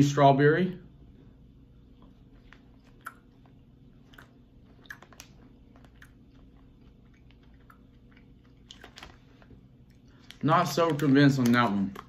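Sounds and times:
person chewing with mouth closed: 0:01.8 - 0:10.4.

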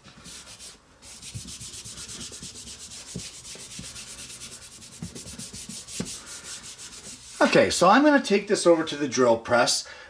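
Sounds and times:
hand rubbing paper: 0:00.2 - 0:07.5.

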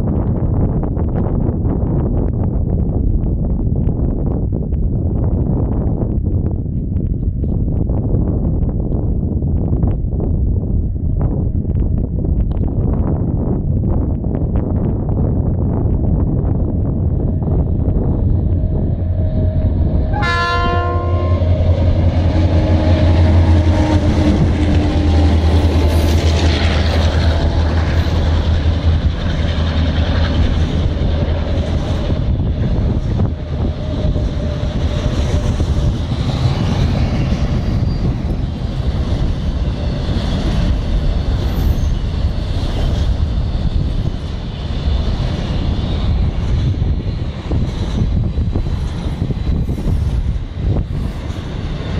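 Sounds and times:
locomotive engine rumble: 0:06.2 - 0:51.9
train horn blast: 0:18.6 - 0:26.1.

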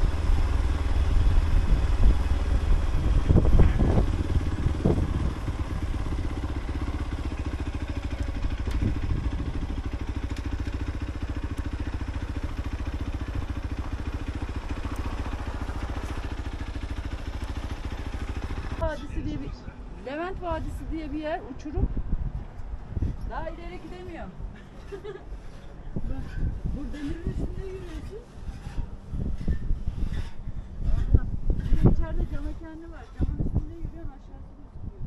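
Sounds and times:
engine knocks: 0:00.0 - 0:19.4
motorcycle engine running at low revs: 0:00.0 - 0:19.4, 0:26.0 - 0:34.1.

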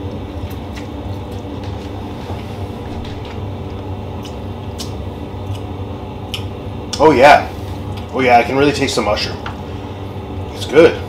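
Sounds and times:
low hum: 0:01.3 - 0:06.1.

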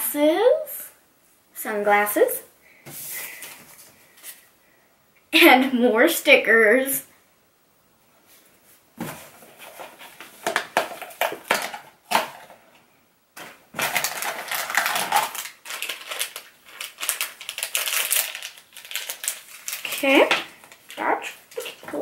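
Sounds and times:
packaging crinkling: 0:13.4 - 0:22.0.

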